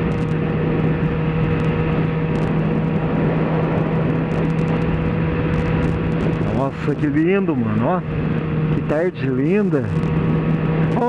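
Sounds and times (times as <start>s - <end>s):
motorcycle engine cruising: 0.0s - 11.0s
wind on microphone: 0.0s - 11.0s.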